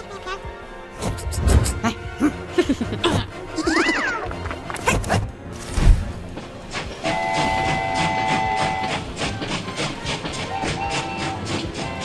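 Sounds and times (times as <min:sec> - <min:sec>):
train wheels clattering: 0:06.2 - 0:12.0
cartoon train horn chord: 0:07.0 - 0:09.2, 0:10.4 - 0:12.0.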